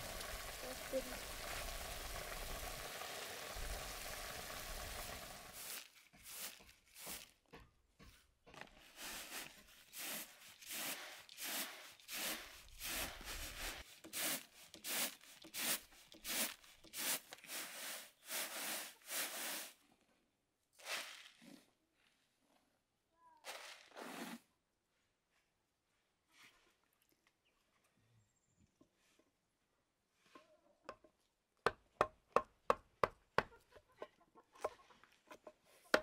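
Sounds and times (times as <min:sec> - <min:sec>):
food sizzling in a pan: 0:00.0 - 0:05.8.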